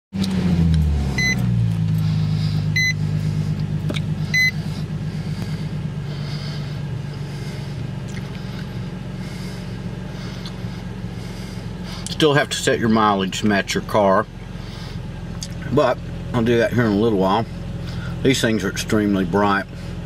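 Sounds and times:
car engine idling: 0:00.2 - 0:20.0
short dashboard warning beeps: 0:01.2 - 0:01.5, 0:02.7 - 0:03.0, 0:04.3 - 0:04.6.

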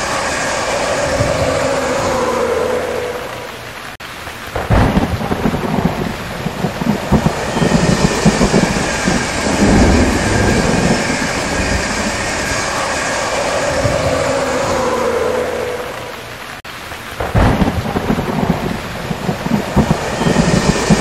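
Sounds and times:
train wheels rumbling on rails: 0:00.0 - 0:03.6, 0:04.6 - 0:16.4, 0:17.2 - 0:21.0
rushing hiss: 0:00.0 - 0:21.0
train clattering: 0:04.6 - 0:14.9, 0:17.4 - 0:21.0.

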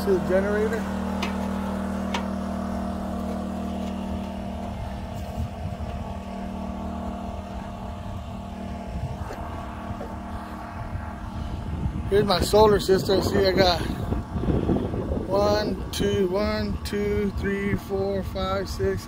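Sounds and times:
generator engine running: 0:00.0 - 0:19.0.

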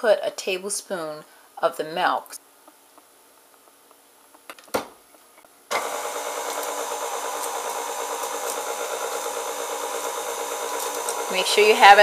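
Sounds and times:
electric mixer running: 0:05.7 - 0:12.0.

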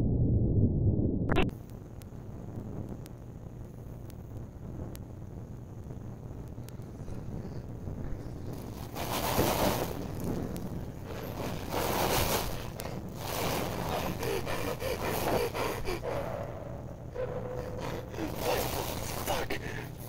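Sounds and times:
person gasping for breath: 0:12.8 - 0:20.0.

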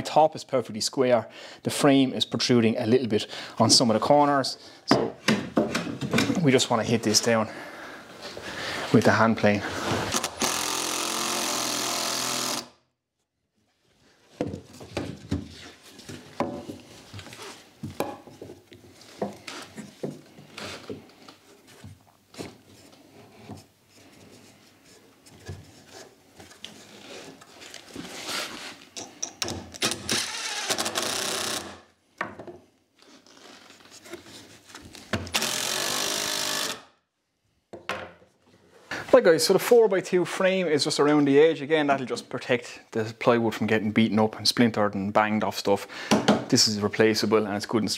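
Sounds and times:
cordless drill driving screws: 0:10.0 - 0:12.8, 0:29.8 - 0:31.8, 0:35.3 - 0:36.8.

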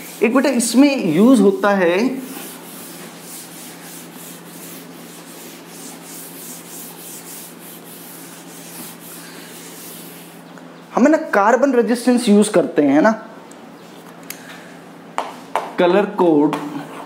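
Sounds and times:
duster rubbing chalkboard: 0:00.0 - 0:10.4.

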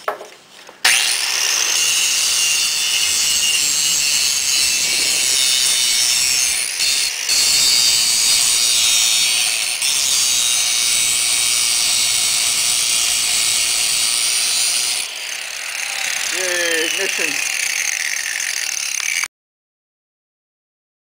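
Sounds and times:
angle grinder grinding metal: 0:00.8 - 0:19.3.

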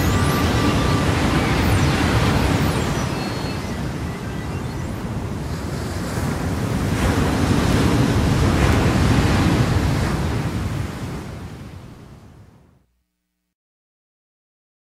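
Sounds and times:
rushing surf-like noise: 0:00.0 - 0:12.3.

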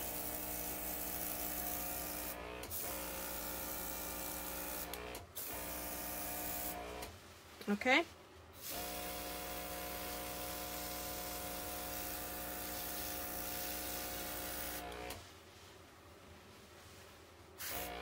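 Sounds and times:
airbrush hissing: 0:08.6 - 0:15.2.

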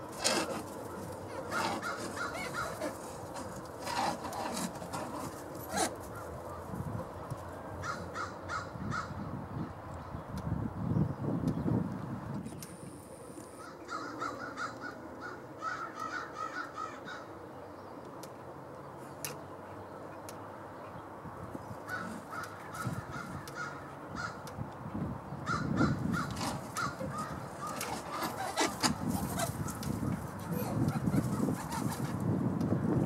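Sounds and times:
crow calling: 0:00.9 - 0:03.5, 0:07.8 - 0:09.3, 0:13.5 - 0:17.4, 0:21.8 - 0:24.6, 0:25.4 - 0:32.0.

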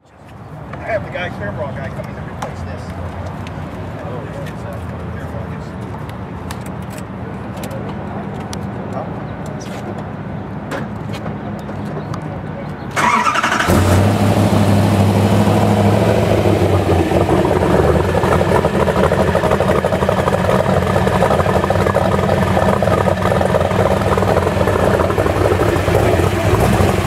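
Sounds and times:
car engine starting and idling: 0:12.9 - 0:27.0.

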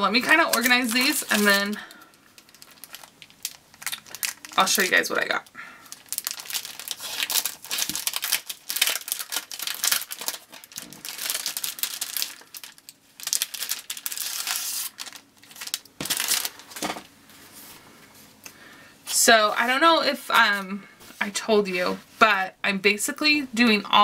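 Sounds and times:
sticker sheets rustling and crinkling: 0:00.2 - 0:01.8, 0:05.9 - 0:17.8.

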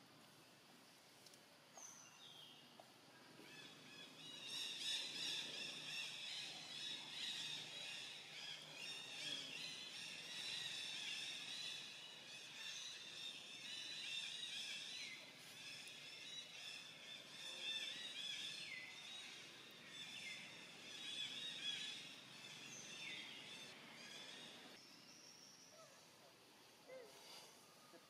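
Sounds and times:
many birds chirping: 0:03.3 - 0:25.1.

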